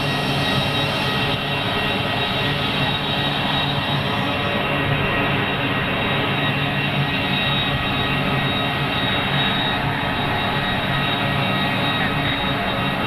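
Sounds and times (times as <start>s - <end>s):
turboprop engines droning: 0.0s - 13.0s.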